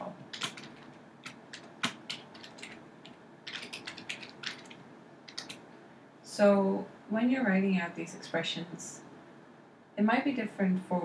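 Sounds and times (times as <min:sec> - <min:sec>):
computer keyboard typing: 0:00.0 - 0:05.7.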